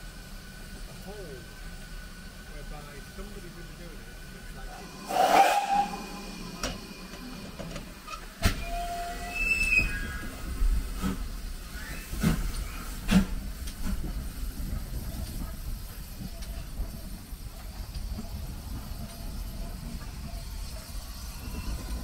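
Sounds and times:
locomotive rumble and exhaust beats: 0:00.0 - 0:22.0
steam burst: 0:04.6 - 0:14.5
wheels squealing: 0:04.8 - 0:10.6.

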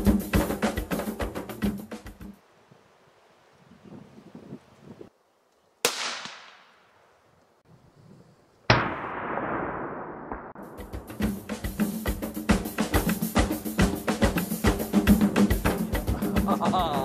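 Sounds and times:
rifle shots echoing: 0:05.8 - 0:06.9, 0:08.7 - 0:10.6.

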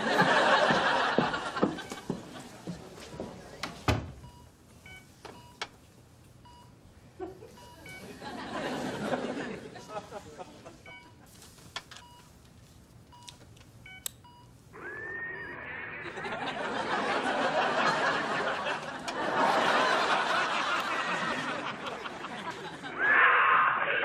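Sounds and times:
studio audience laughing: 0:00.0 - 0:02.7, 0:07.2 - 0:10.9, 0:15.6 - 0:23.1.

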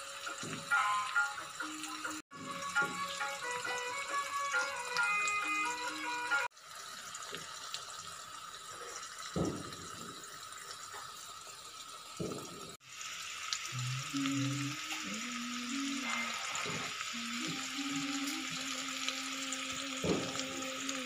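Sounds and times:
background music: 0:00.0 - 0:06.5
fish sizzling in hot oil: 0:00.0 - 0:21.0
dull thumps: 0:09.4 - 0:10.2.

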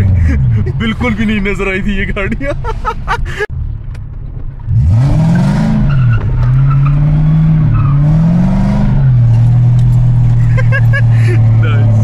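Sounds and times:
car engine revving: 0:04.6 - 0:12.0.

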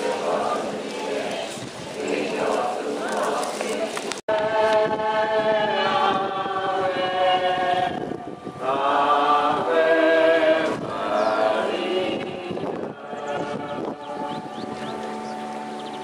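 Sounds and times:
group singing a slow hymn: 0:00.0 - 0:16.0.

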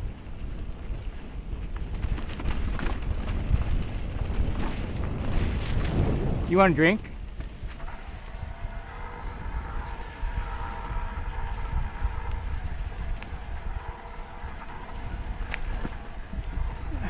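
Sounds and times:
wind rumble on microphone: 0:00.0 - 0:17.0
faint steady hum: 0:07.0 - 0:17.0.

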